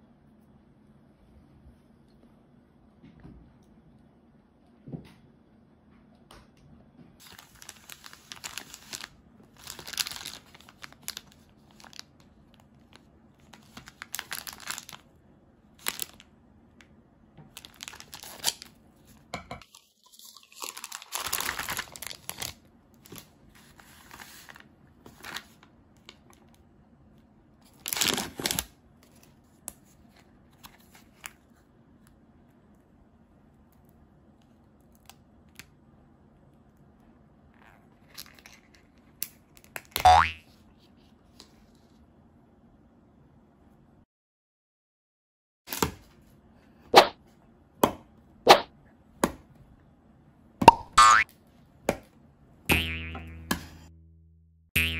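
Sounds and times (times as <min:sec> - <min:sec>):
plastic packaging crinkling and tearing: 0:07.2 - 0:15.1, 0:15.7 - 0:16.3, 0:17.5 - 0:18.8, 0:19.7 - 0:26.4, 0:27.6 - 0:31.4.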